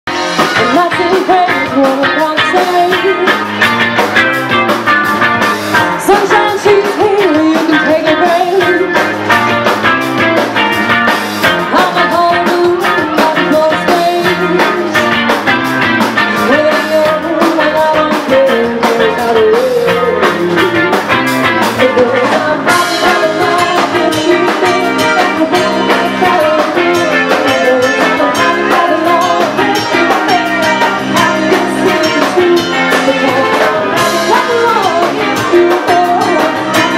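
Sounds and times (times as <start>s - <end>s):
drum kit: 0.1s - 36.9s
electric guitar: 0.1s - 36.9s
woman singing into microphone: 0.5s - 3.4s, 5.8s - 9.0s, 11.6s - 15.0s, 16.3s - 20.9s, 21.6s - 36.9s.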